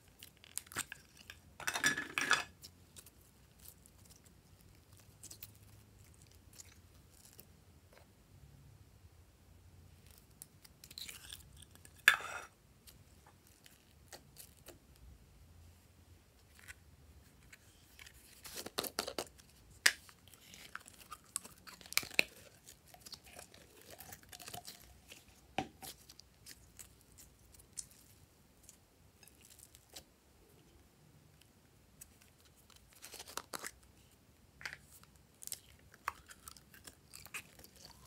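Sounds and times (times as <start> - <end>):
slime tubs clicking and crackling: 34.6 - 38.0.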